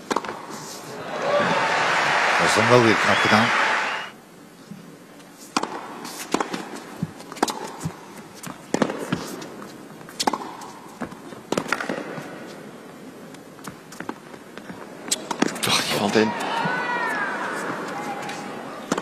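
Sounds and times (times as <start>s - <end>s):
tennis ball hit by racquets: 0.0s - 0.5s, 5.6s - 6.8s, 8.7s - 9.2s, 10.2s - 10.8s, 11.5s - 12.2s
tennis ball bouncing: 10.2s - 10.7s.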